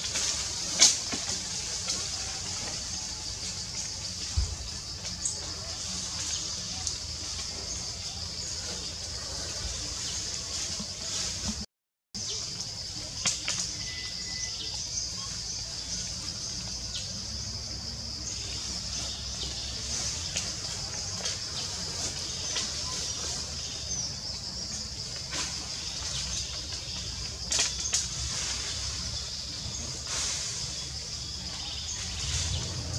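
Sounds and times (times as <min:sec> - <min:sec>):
low rumble: 0:30.9 - 0:32.9.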